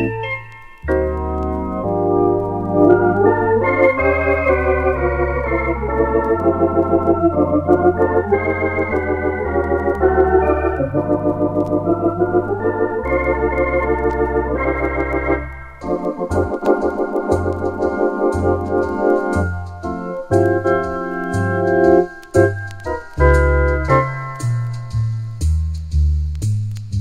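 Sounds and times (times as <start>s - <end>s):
electronic organ chords: 0.0s - 25.7s
organ bass line: 0.0s - 27.0s.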